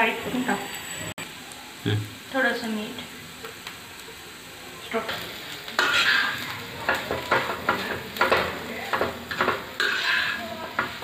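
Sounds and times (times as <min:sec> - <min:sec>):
food sizzling: 0:00.0 - 0:11.0
spoon scraping a pan: 0:04.9 - 0:11.0.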